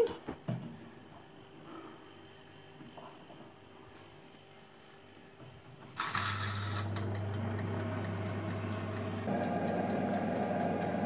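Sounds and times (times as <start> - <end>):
oven electrical hum: 0.0 - 11.0
mechanical timer ticking: 7.0 - 11.0.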